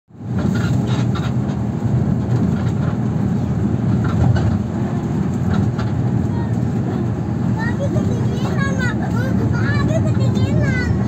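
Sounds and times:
vehicle cabin rumble: 0.1s - 11.0s.

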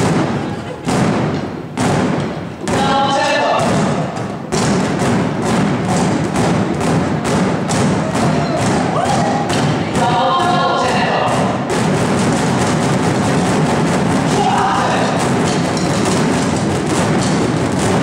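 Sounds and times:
drumsticks beating exercise balls: 0.0s - 18.0s
person singing or calling out: 8.4s - 11.5s, 14.3s - 15.2s.

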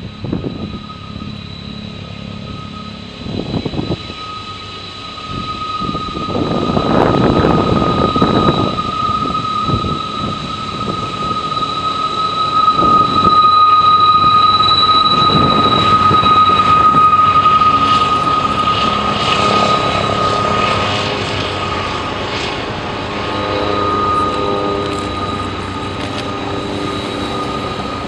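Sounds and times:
rushing noise: 0.0s - 28.0s
train wheels squealing: 0.0s - 28.0s.

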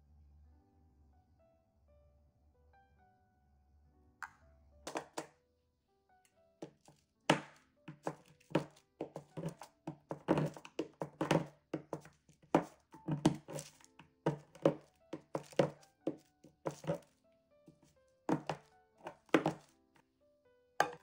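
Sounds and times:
soft background music: 0.1s - 21.0s
knife chopping chocolate on board: 4.9s - 5.3s, 6.6s - 17.1s, 18.3s - 19.7s.

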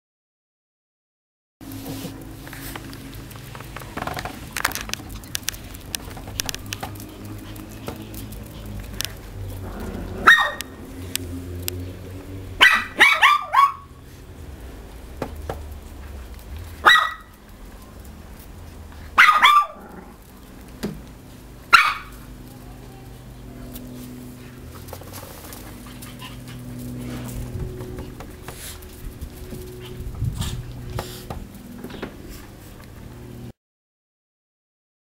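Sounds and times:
small dogs yapping: 5.3s - 11.2s, 12.6s - 14.1s, 16.7s - 17.4s, 19.0s - 20.6s, 21.6s - 31.2s.

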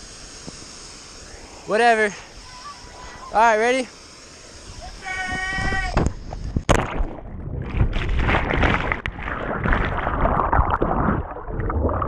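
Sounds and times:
underwater rushing and bubbling: 6.6s - 12.0s
splash into water: 6.7s - 12.0s.

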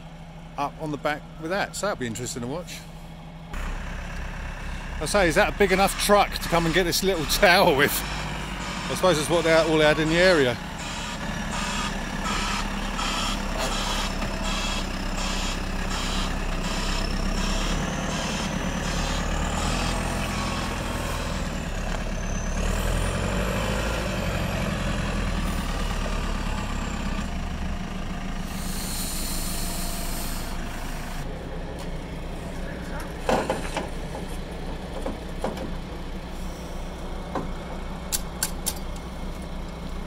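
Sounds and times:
diesel engine running: 0.0s - 40.0s
reversing alarm beeping: 3.6s - 27.2s, 28.6s - 31.2s
air hiss: 28.5s - 30.6s.

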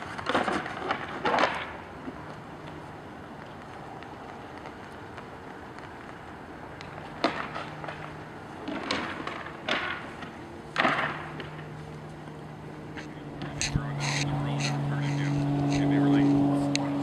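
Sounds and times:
low steady hum: 0.0s - 17.0s
antlers clacking and scraping: 12.8s - 17.0s.

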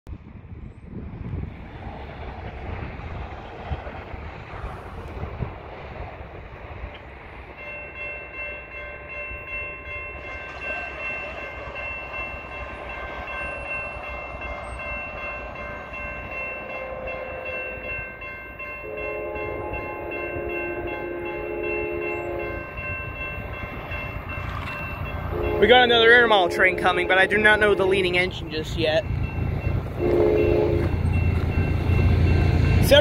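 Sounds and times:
railroad crossing bell ringing: 6.8s - 33.0s
locomotive horn blast: 16.6s - 17.9s, 18.8s - 22.7s, 25.3s - 27.8s, 30.0s - 31.0s.

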